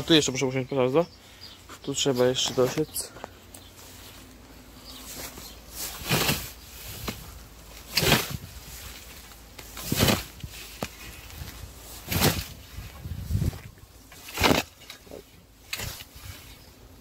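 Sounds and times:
scythe swishing through grass: 5.1 - 13.6.

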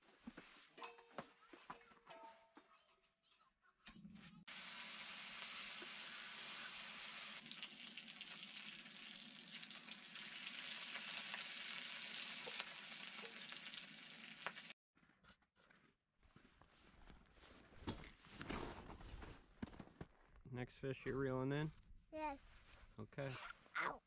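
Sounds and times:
food sizzling in a pan: 4.5 - 14.8.

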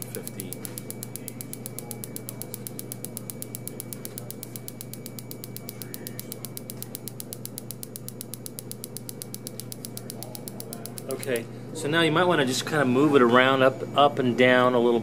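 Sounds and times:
rapid evenly spaced clicks: 0.0 - 11.4
low steady hum: 0.0 - 15.0.

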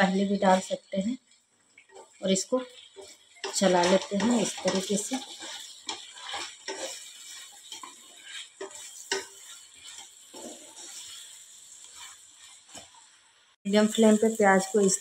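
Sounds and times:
onions and spices sizzling in oil: 0.0 - 15.0
spatula scraping and knocking pan: 1.8 - 13.2.

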